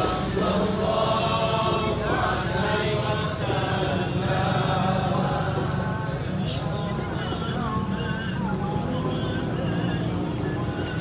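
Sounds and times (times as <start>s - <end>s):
group chanting in unison: 0.0s - 6.8s.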